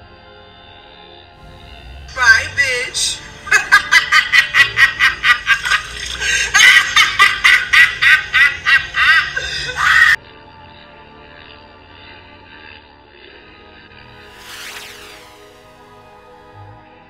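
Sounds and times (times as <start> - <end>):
quiet background music: 0.0 - 17.0
person cackling laugh: 3.0 - 10.2.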